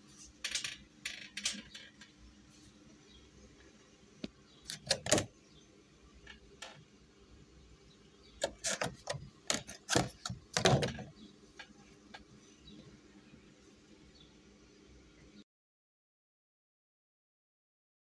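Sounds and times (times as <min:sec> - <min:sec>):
plastic tray crackling: 0:08.4 - 0:11.1.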